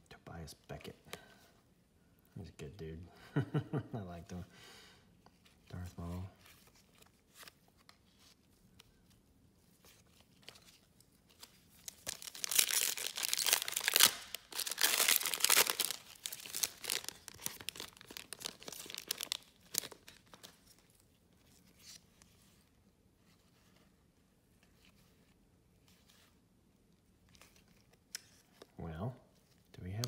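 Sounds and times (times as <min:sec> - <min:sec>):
wrapper crinkling: 0:10.3 - 0:20.9
wrapper tearing: 0:11.3 - 0:20.6.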